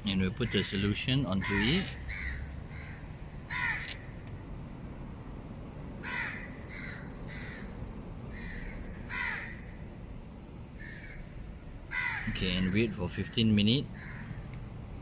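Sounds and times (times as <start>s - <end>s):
crow cawing: 0.4s - 4.2s, 6.0s - 9.8s, 10.8s - 11.3s, 11.9s - 14.5s.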